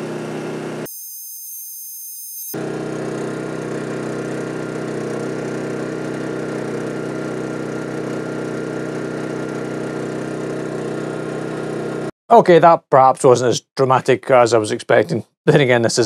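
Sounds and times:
generator engine drone: 2.6s - 12.1s.

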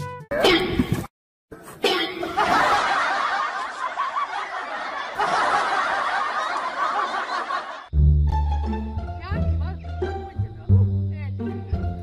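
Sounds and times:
crowd laughing: 2.2s - 7.9s.

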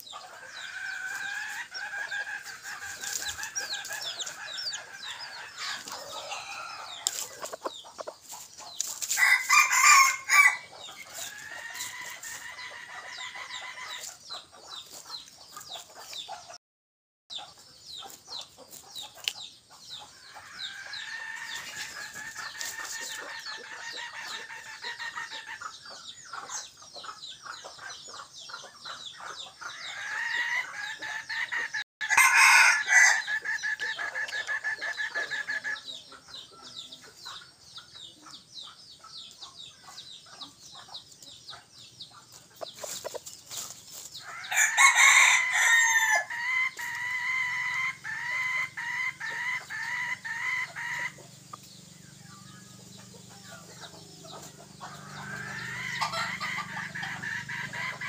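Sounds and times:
rooster crowing: 3.4s - 7.1s, 9.2s - 13.9s, 32.0s - 35.6s, 44.3s - 51.2s.

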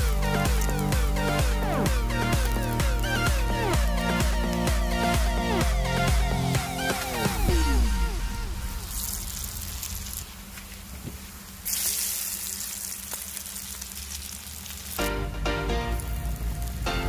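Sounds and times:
patties deep-frying in oil: 8.8s - 15.0s, 16.0s - 16.8s.

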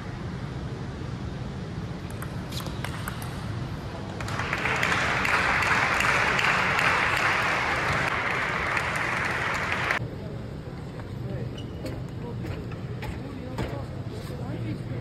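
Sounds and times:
applause: 4.1s - 10.0s.

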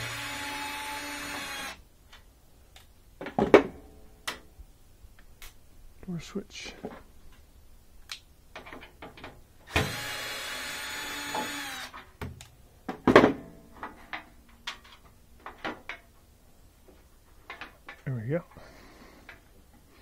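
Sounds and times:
steady grinding noise: 0.0s - 1.8s.

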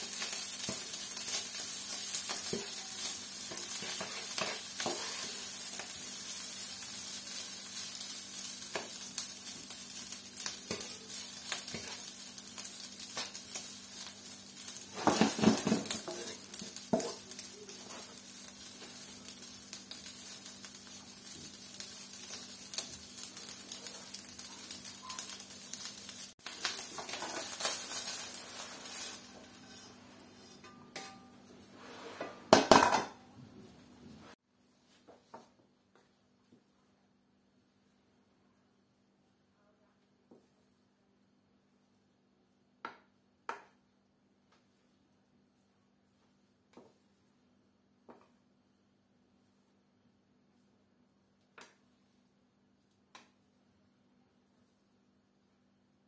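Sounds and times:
rice sizzling in a frying pan: 0.0s - 33.1s, 40.2s - 56.0s
wooden spatula scraping a pan: 0.1s - 9.0s, 10.7s - 12.6s, 14.6s - 20.4s, 26.8s - 32.6s, 44.5s - 50.8s.

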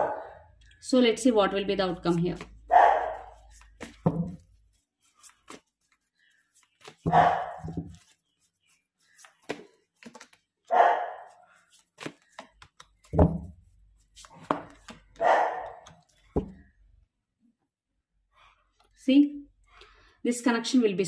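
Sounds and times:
cards shuffling: 1.9s - 10.7s, 11.5s - 13.4s, 14.0s - 16.5s.

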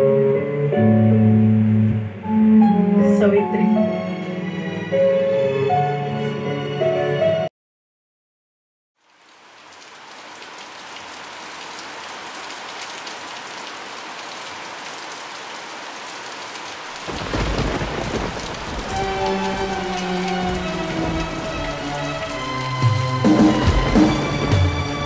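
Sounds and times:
soft music tones: 0.0s - 7.4s
steady rain: 9.0s - 25.0s
deep rumble of thunder: 17.0s - 25.0s.

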